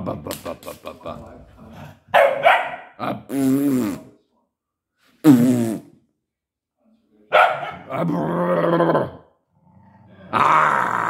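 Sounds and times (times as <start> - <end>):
dog barking: 2.1 - 3.0, 7.3 - 7.9.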